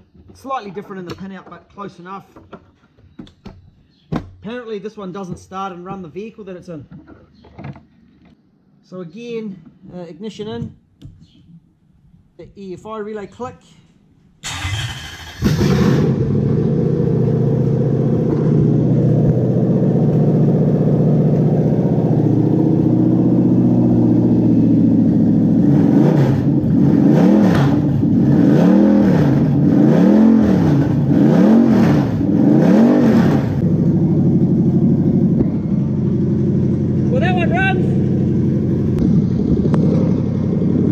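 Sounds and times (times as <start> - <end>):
engine cranking: 14.4 - 16.2
engine revving: 14.4 - 40.9
engine idling: 33.6 - 40.9.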